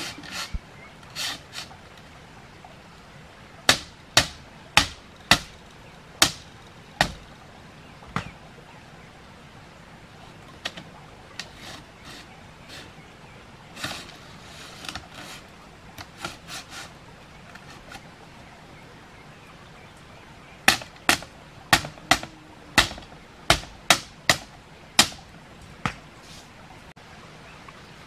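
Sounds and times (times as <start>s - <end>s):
bamboo strips rustling: 0.0s - 2.2s, 10.5s - 13.0s, 13.7s - 18.2s, 20.7s - 26.6s
sharp knocks on bamboo: 3.7s - 5.6s, 6.2s - 7.2s, 8.1s - 8.4s, 20.6s - 26.1s.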